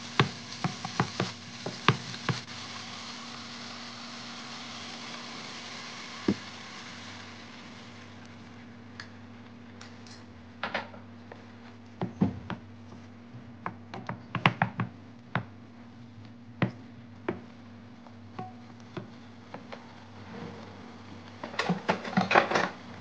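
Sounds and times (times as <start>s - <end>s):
spatula stirring in a pan: 0.0s - 8.7s
steady low hum: 0.0s - 23.0s.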